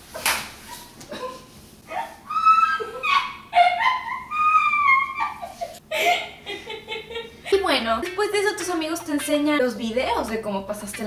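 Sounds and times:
dog whining: 1.9 - 3.7.

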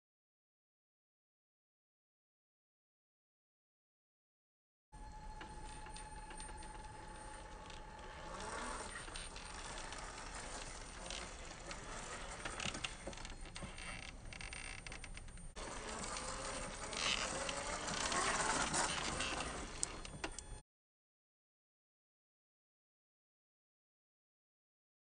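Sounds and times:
electric motor whining: 5.0 - 20.6
tyres scraping on stone: 15.6 - 20.0.

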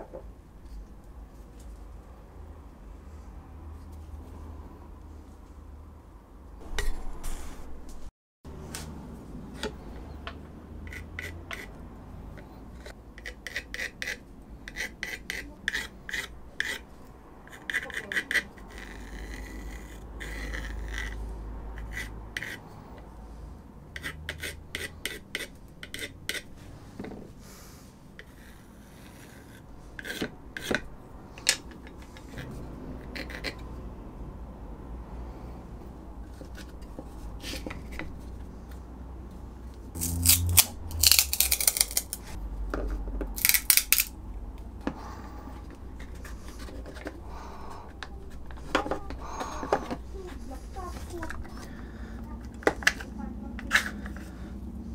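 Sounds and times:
pencil scratching on plastic: 10.8 - 23.0, 23.9 - 26.5, 28.2 - 30.9, 45.6 - 54.3.

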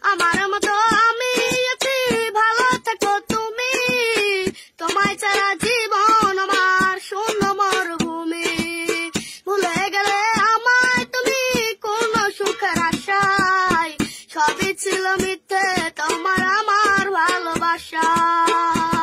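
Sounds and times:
boy singing: 0.0 - 19.0
hand beating a metal pot: 0.2 - 19.0.

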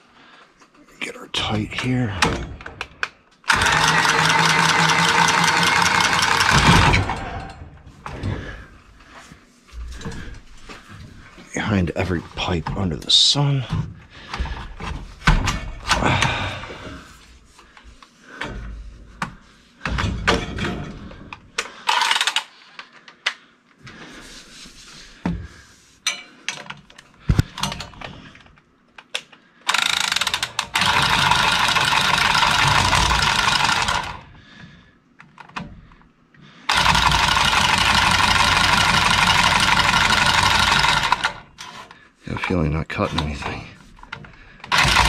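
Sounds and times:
cordless tool motor running: 3.5 - 7.0, 29.7 - 34.2, 36.7 - 41.5, 44.7 - 45.0
tools and pipe clicking: 17.7 - 23.4, 26.0 - 34.2, 35.2 - 36.0.

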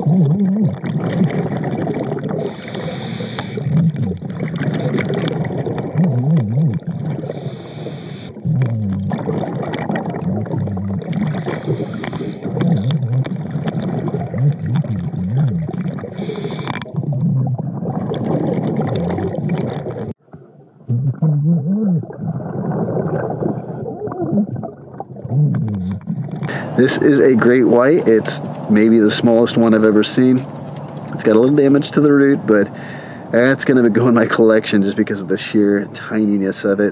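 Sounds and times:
underwater gurgling: 0.0 - 36.9
low wavering moan: 20.9 - 22.2.

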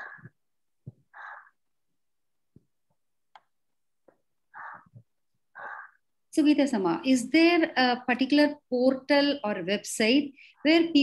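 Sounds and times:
soft clicks: 2.9 - 4.2.

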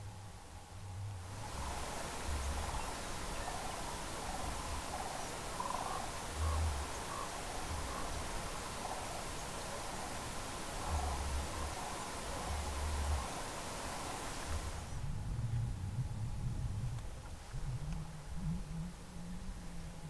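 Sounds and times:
steady hiss: 0.0 - 20.0
wind rumble on microphone: 0.0 - 20.0
cranes rattling calls: 3.4 - 9.3.

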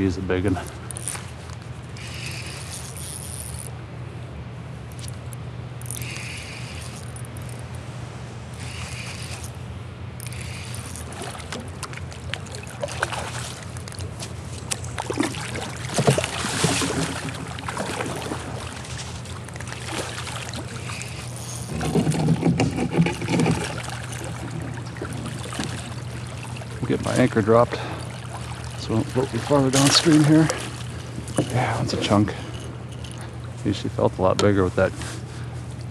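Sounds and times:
steady low hum: 0.0 - 35.9
fish splashing at the surface: 10.3 - 14.2, 14.8 - 22.2, 27.8 - 31.4.

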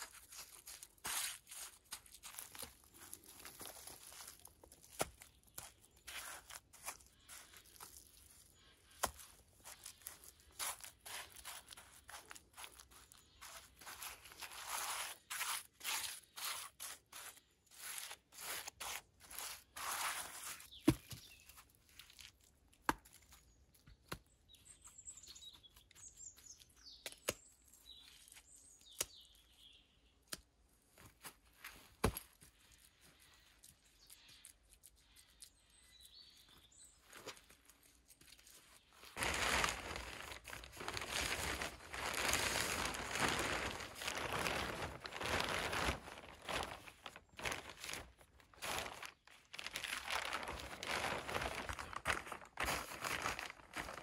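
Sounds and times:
hands scraping through earth: 0.0 - 21.3.

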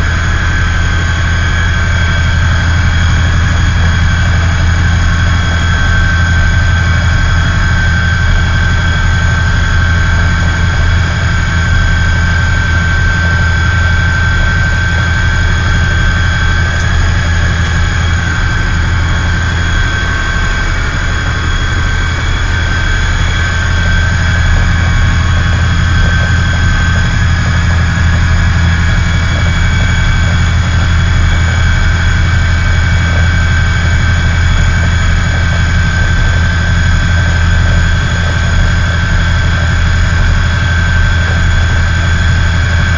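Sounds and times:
diesel engine drone: 0.0 - 42.9
high-pitched whine: 0.0 - 42.9.

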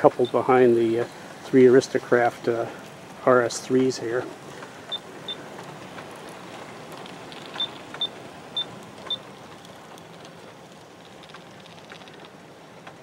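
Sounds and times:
faint clicks: 8.9 - 13.0.

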